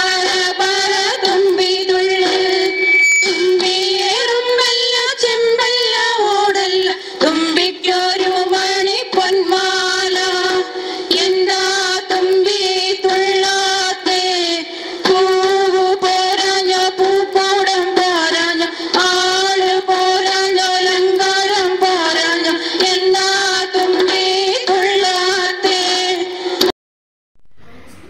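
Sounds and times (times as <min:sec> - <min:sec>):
steady held drone note: 0:02.0 - 0:05.0
woman singing folk song: 0:03.5 - 0:26.4.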